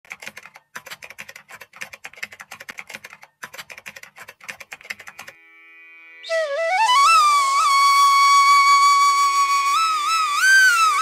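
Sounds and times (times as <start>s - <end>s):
keyboard typing clicks: 0.1s - 5.4s
flute-like background music: 6.0s - 11.0s.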